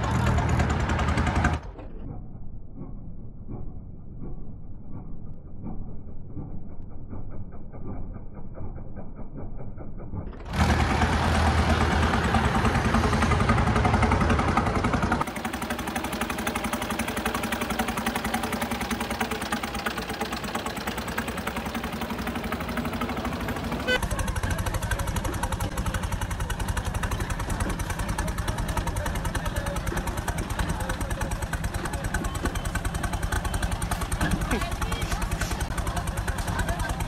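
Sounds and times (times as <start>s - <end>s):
tractor diesel engines running: 0.0s - 2.1s, 10.1s - 37.0s.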